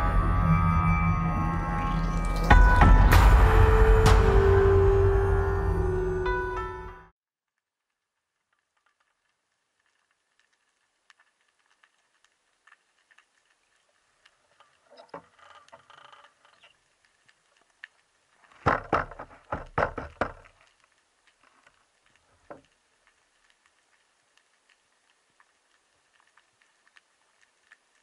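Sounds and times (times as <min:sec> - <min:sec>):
deep noisy bursts: 0:00.0 - 0:06.3
underwater clicks and crackles: 0:07.5 - 0:28.0.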